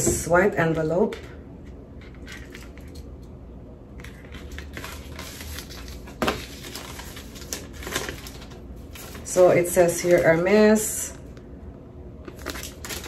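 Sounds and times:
steady low hum: 0:00.0 - 0:13.0
paper envelope rustling: 0:04.0 - 0:10.4, 0:12.2 - 0:13.0.

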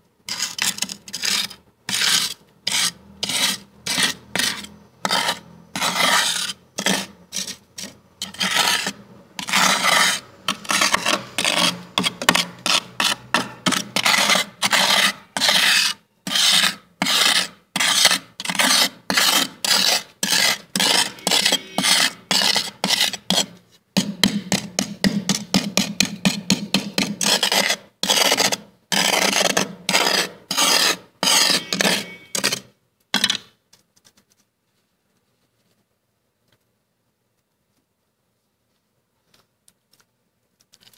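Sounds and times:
fingers scraping freezer frost: 0:00.3 - 0:23.6, 0:25.4 - 0:33.3.

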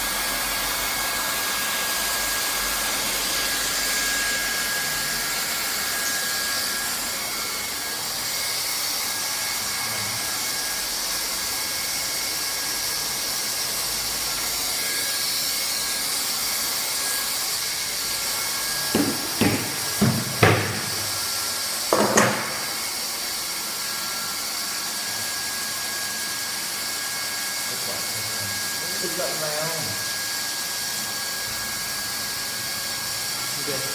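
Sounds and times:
hot-air gun blowing: 0:12.0 - 0:27.0
sharp knocks: 0:18.9 - 0:21.2, 0:21.9 - 0:22.6.

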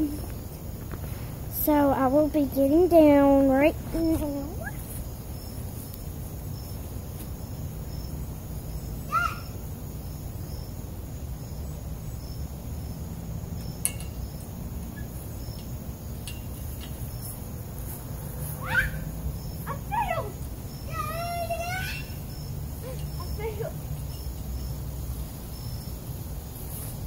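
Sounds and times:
steady low rumble: 0:00.0 - 0:09.1
insects chirping: 0:00.0 - 0:27.0
high sliding calls: 0:18.0 - 0:23.7.

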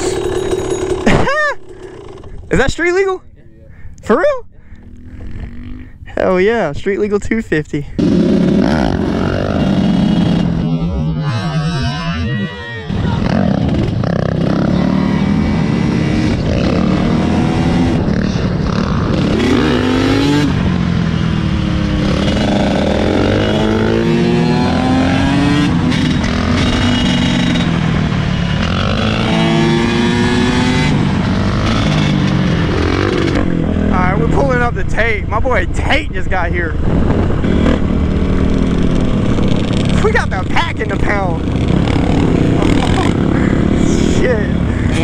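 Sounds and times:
dirt bike engines revving: 0:00.0 - 0:45.0.

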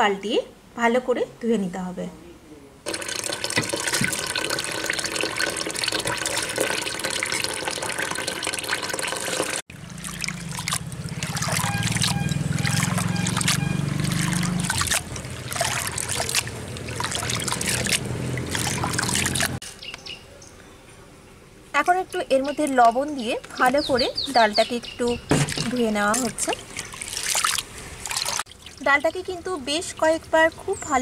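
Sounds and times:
hands stirring lentils in water: 0:02.9 - 0:19.6, 0:25.4 - 0:31.0
tap water running into bowl: 0:02.9 - 0:19.6.

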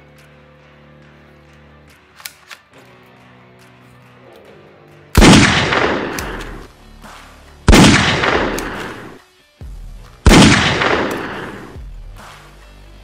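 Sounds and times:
soft background music: 0:00.0 - 0:13.0
rifle gunshots with echo: 0:05.2 - 0:06.7, 0:07.7 - 0:09.2, 0:10.2 - 0:11.8.

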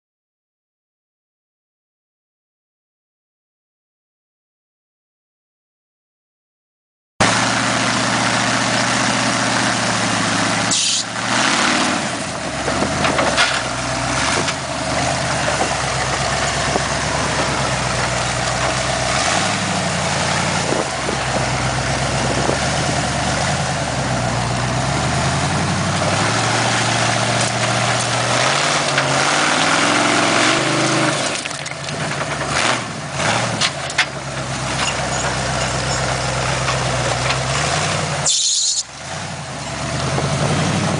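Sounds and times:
buggy engine revving: 0:07.2 - 0:40.9
buggy knocking on rock: 0:12.3 - 0:18.9.

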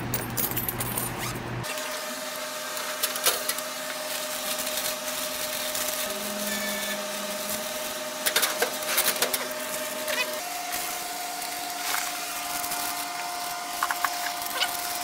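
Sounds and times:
vending machine electrical hum: 0:00.0 - 0:15.0
bags rustling: 0:02.8 - 0:07.9, 0:08.7 - 0:15.0.

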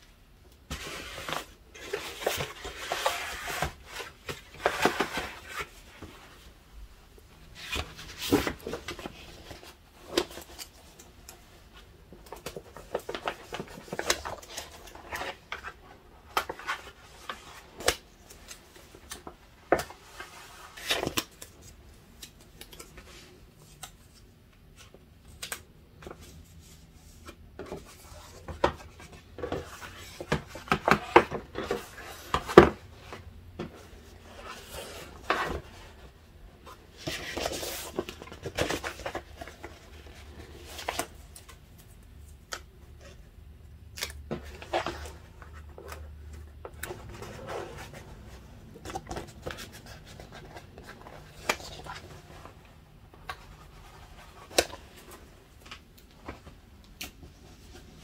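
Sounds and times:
paper rustling and crinkling: 0:00.7 - 0:06.4, 0:07.4 - 0:43.2, 0:44.0 - 0:58.0.

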